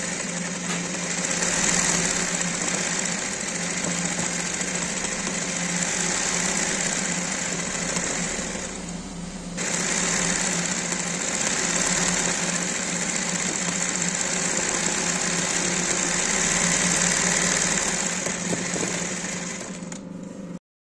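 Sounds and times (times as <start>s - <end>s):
embroidery sewing machine running: 0.0s - 20.6s.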